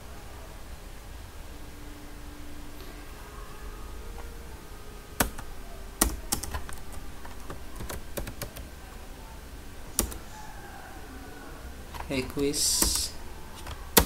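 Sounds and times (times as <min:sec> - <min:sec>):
keyboard typing clicks: 0:05.2 - 0:08.7, 0:09.9 - 0:10.3, 0:11.9 - 0:14.0.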